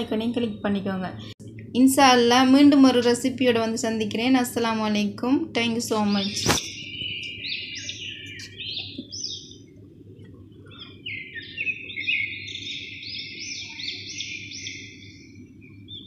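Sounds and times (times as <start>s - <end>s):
low steady hum: 0.0s - 16.0s
small birds chirping: 5.7s - 16.0s.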